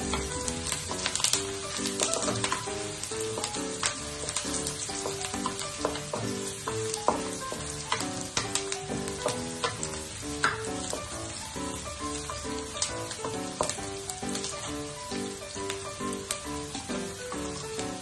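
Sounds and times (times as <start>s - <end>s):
wooden spoon scraping a pan: 0.0s - 11.1s
light background music: 0.0s - 18.0s
onions sizzling in a wok: 0.0s - 18.0s.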